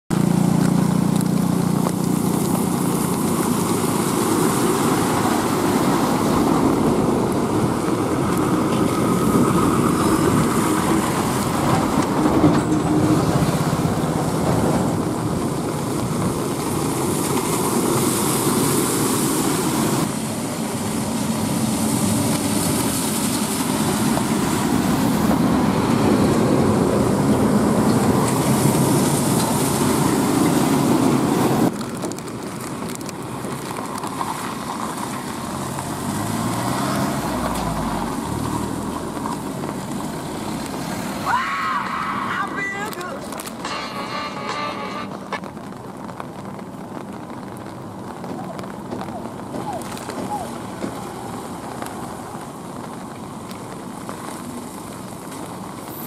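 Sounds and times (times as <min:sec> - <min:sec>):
tyres hissing on wet road: 0:00.1 - 0:56.0.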